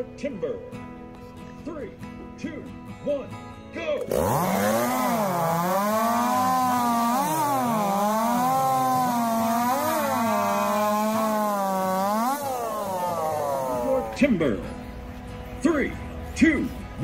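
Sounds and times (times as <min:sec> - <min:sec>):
chainsaw cutting log: 0:04.0 - 0:14.4.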